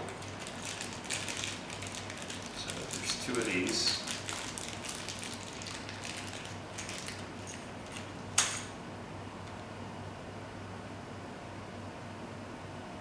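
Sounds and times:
faint steady hum: 0.0s - 13.0s
plastic parts rustling: 0.1s - 8.6s.

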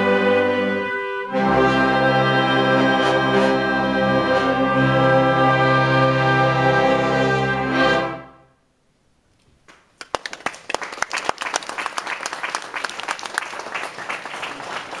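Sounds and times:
audience applause: 10.0s - 15.0s.

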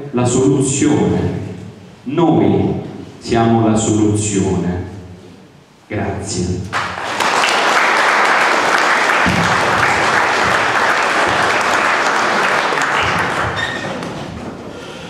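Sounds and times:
audience applauding: 6.8s - 14.4s.

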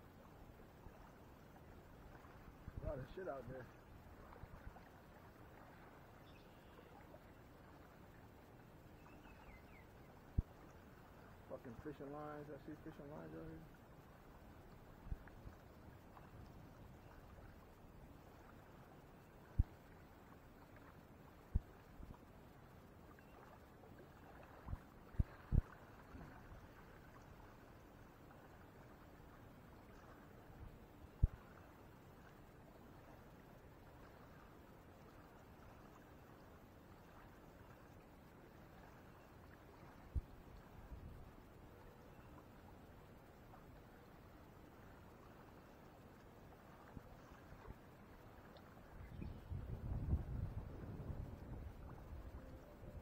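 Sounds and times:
light wind: 0.0s - 53.0s
water lapping at shore: 0.0s - 53.0s
faint high bird chirps: 6.2s - 7.4s, 8.9s - 10.5s, 23.2s - 23.5s, 42.0s - 42.4s, 49.0s - 49.7s.

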